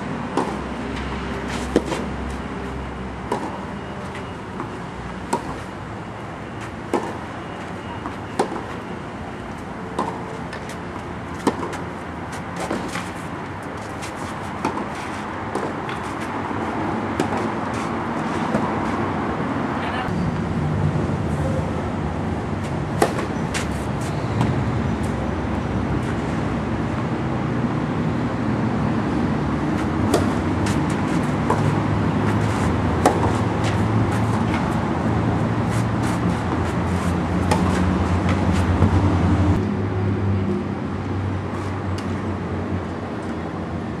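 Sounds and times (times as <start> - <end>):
road traffic rumble: 0.0 - 44.0
tennis balls struck by rackets: 0.2 - 5.9, 6.6 - 8.9, 9.5 - 19.0, 22.6 - 25.2, 29.2 - 39.2.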